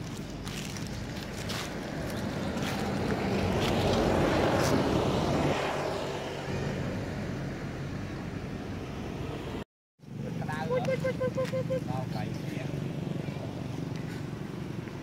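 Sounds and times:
vehicle passing: 0.0s - 15.0s.

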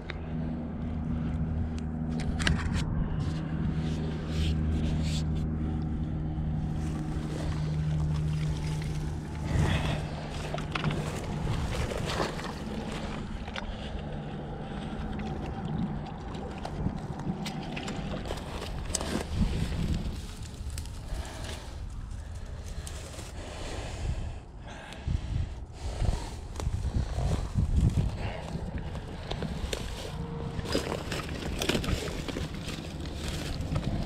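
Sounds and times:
low engine hum: 0.0s - 34.0s
grass rustling: 2.2s - 15.0s, 17.4s - 23.9s, 25.8s - 34.0s
fish splashing: 7.0s - 20.2s, 28.9s - 33.6s.

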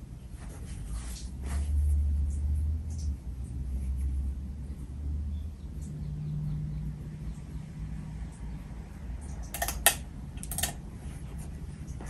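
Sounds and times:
ceiling fan humming: 6.8s - 12.0s
sharp clicks: 9.3s - 10.8s.

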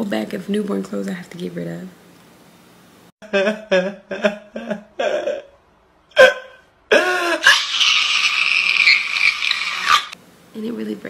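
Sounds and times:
man crying loudly: 3.2s - 7.8s.

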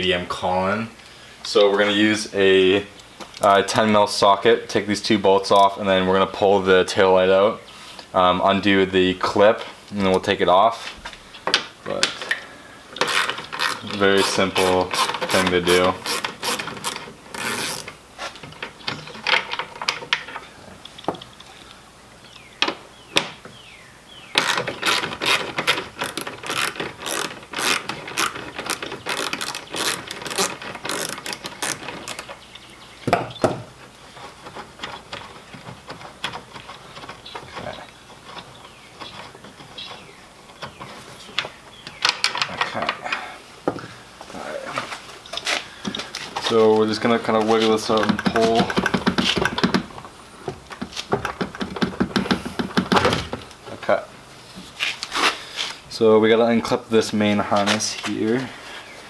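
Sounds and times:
socket ratchet clicking: 13.0s - 14.4s, 16.0s - 18.0s, 24.4s - 32.3s.

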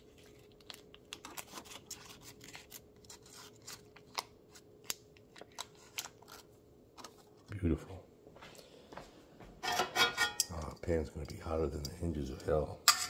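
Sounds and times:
paper wrapper crinkling: 0.0s - 7.5s
faint steady hum: 0.0s - 13.0s.

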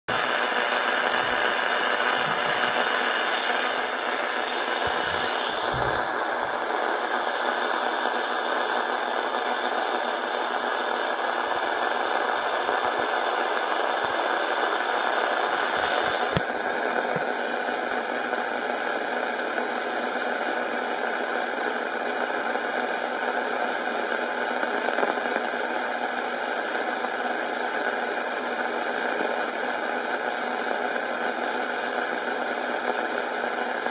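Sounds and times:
loud steady hiss: 0.1s - 20.6s.

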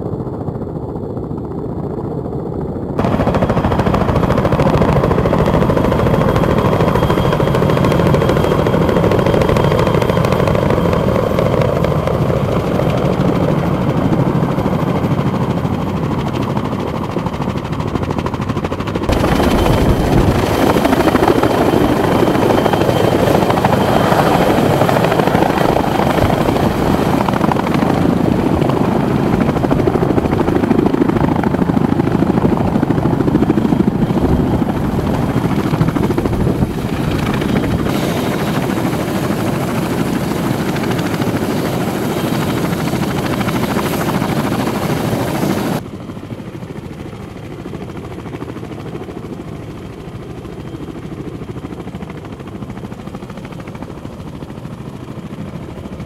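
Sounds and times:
helicopter rotor and turbine noise: 0.0s - 56.0s.

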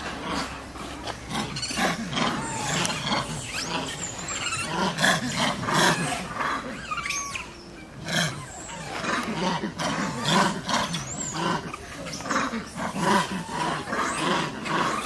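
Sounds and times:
macaques calling: 0.0s - 15.0s
monkey squeals: 1.4s - 9.1s.

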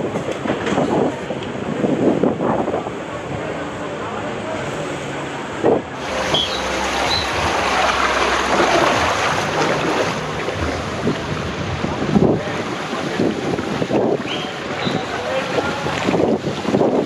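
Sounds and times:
wind on microphone: 0.0s - 3.6s, 5.4s - 17.0s
water rushing down slide: 6.0s - 17.0s.

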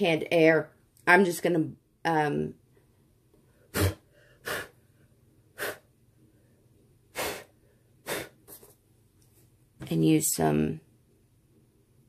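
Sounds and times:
short puffs of breath: 3.7s - 4.8s, 5.5s - 5.9s, 7.1s - 8.7s.

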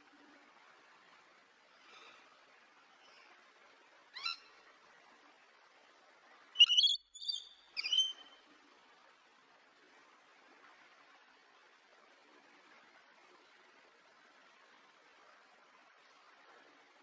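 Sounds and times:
lorikeet calling: 4.2s - 4.4s, 6.6s - 8.4s.

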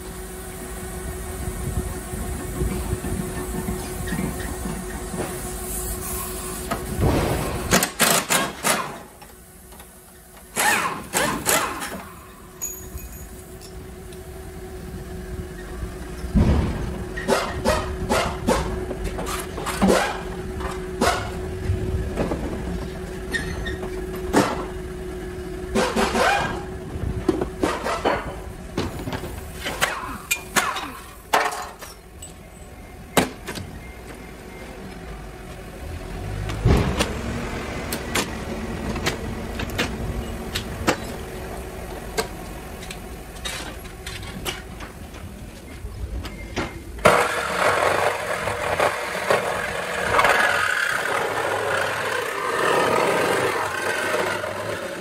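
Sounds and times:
power saw cutting sheet metal: 10.5s - 12.1s, 25.7s - 26.7s, 47.0s - 55.0s.

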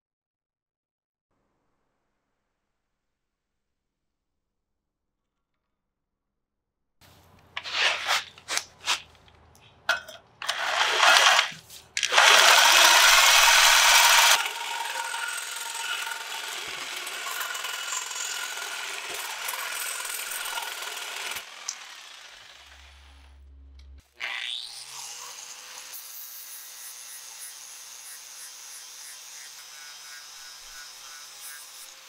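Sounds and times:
reciprocating saw cutting metal: 10.4s - 23.4s, 24.1s - 32.0s
power tool: 10.4s - 32.0s.

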